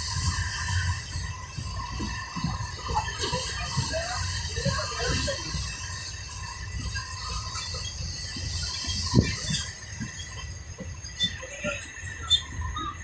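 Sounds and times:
railway coach rumble: 0.0s - 13.0s.

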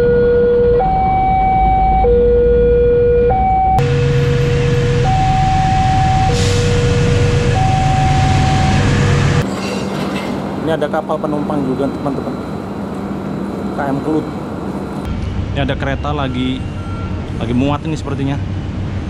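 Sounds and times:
two-tone crossing alarm: 0.0s - 9.4s
diesel locomotive engine: 0.0s - 19.0s.

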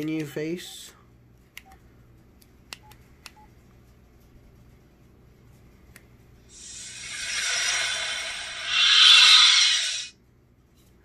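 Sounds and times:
loud rushing hiss from phone: 6.5s - 10.1s.

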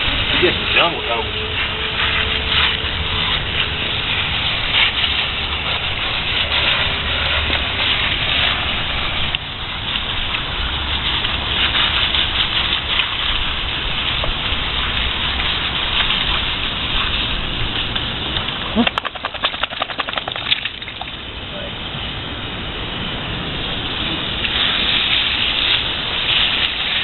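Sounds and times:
hose nozzle spraying water: 18.8s - 21.3s.

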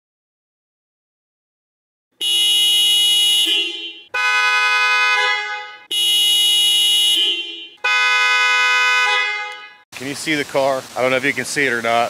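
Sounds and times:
two-tone car horn honks: 2.2s - 9.9s.

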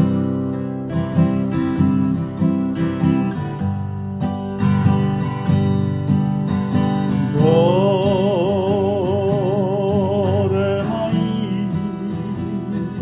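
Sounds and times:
acoustic guitar strumming: 0.0s - 13.0s
man singing: 7.2s - 13.0s.

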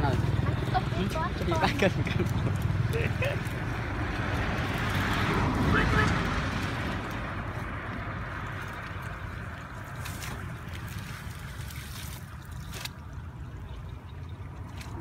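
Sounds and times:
wind rumble on microphone: 2.0s - 15.0s
wet rustling and splashing of weed: 8.4s - 13.2s.

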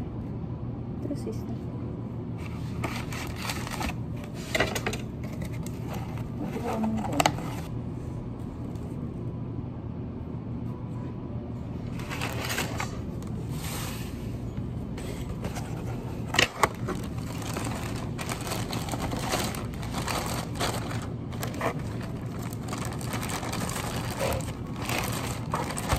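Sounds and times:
steady low hum: 0.0s - 25.9s
rustling: 16.6s - 25.9s.

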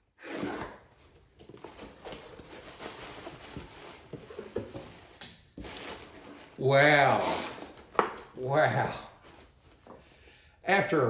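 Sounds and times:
packing paper rustling: 0.4s - 10.0s
packing tape tearing off: 5.1s - 8.3s.

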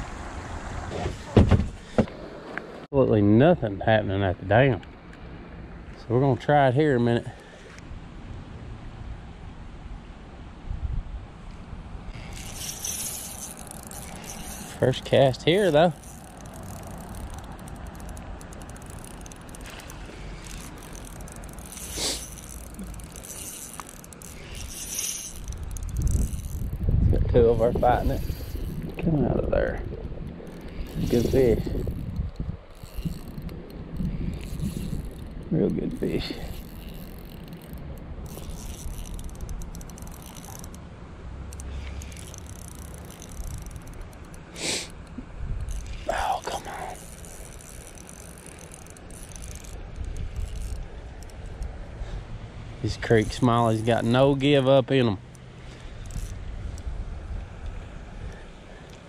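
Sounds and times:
fishing reel clicking: 12.1s - 29.0s, 30.2s - 40.8s, 41.5s - 51.9s, 52.9s - 54.6s, 55.3s - 56.9s
short hiss: 21.8s - 22.3s, 44.5s - 45.0s.

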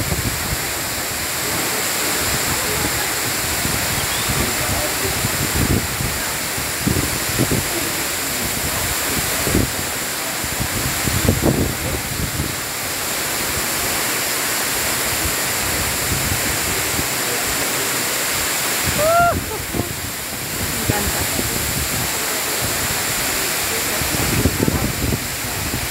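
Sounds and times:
waterfall rushing onto rock: 0.0s - 25.9s.

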